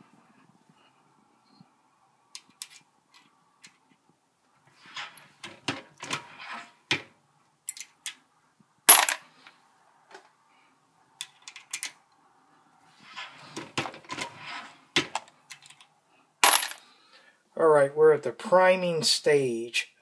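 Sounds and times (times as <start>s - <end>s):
metallic clicks of brass cases: 2.4s - 3.8s, 6.9s - 8.2s, 11.2s - 12.0s, 15.0s - 16.8s
knocks and rattles: 4.8s - 7.1s, 13.2s - 15.8s.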